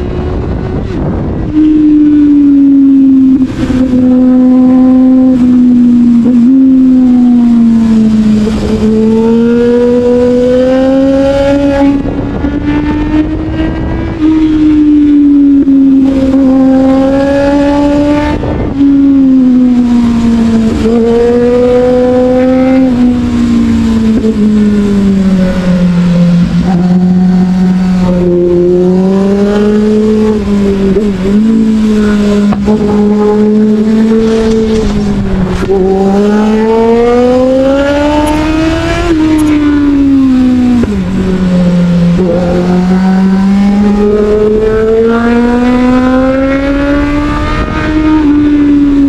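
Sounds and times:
motorcycle engine revving: 0:00.0 - 0:49.0
wind noise: 0:00.0 - 0:49.0.

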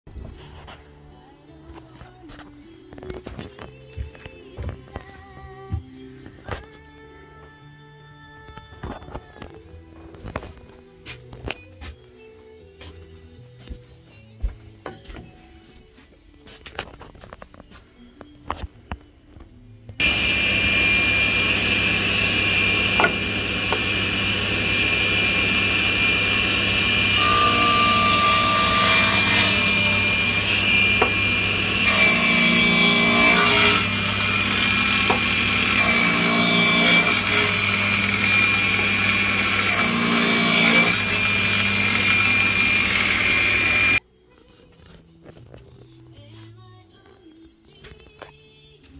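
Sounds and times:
table saw cutting wood: 0:20.0 - 0:44.0.

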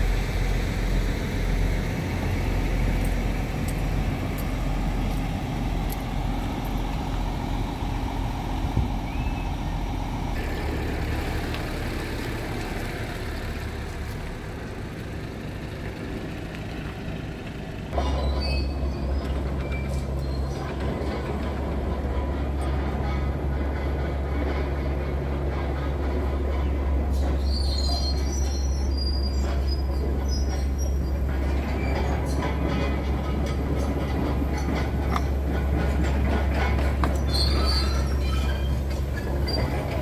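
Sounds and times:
diesel engine idling: 0:00.0 - 0:18.0.

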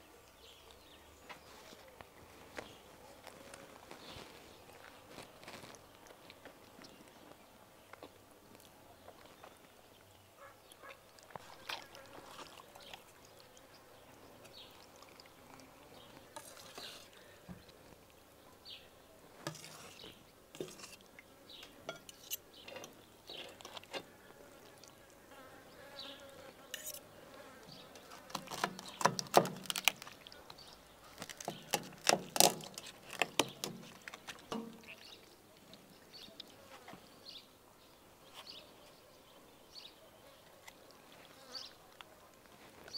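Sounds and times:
cutlery scraping metal tray: 0:19.5 - 0:21.0, 0:26.8 - 0:27.0.

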